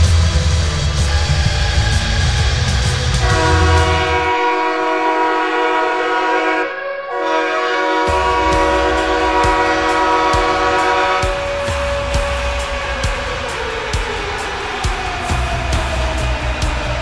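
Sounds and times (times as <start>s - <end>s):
music with heavy low beat: 0.0s - 4.5s, 8.1s - 17.0s
air horn blasts: 3.2s - 12.4s.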